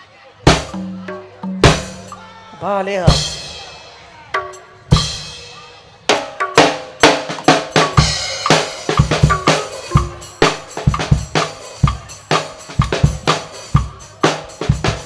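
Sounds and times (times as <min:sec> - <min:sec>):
deep drum thuds: 0:00.5 - 0:02.2
pitched drum strokes: 0:00.5 - 0:02.3, 0:03.0 - 0:15.0.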